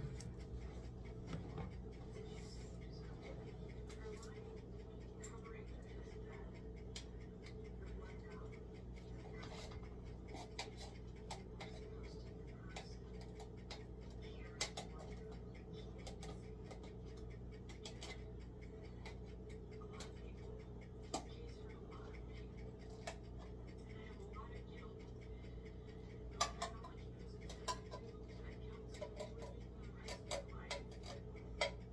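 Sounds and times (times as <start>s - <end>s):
steady low hum: 0.0s - 31.9s
kitchen clicks and taps: 26.4s - 28.1s.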